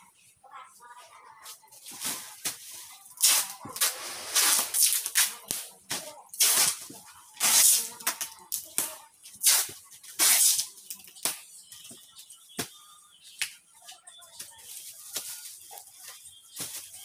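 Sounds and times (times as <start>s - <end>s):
plastic wrapping rustling: 14.3s - 17.0s.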